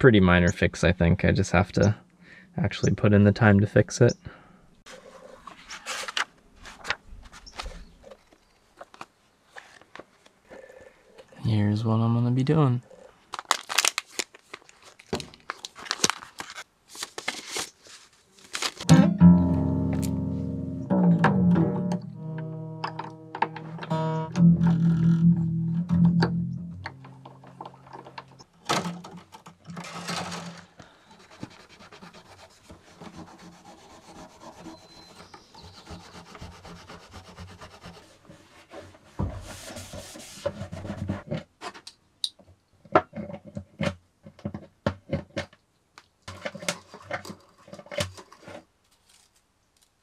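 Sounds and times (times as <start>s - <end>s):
guitar strings scraping over wood: 18.8s - 31.5s.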